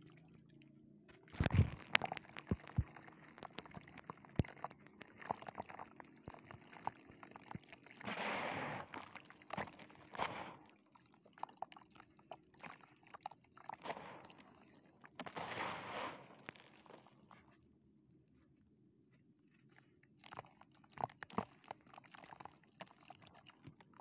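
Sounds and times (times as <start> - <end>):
powder clumps crackling and popping: 1.2 - 17.6.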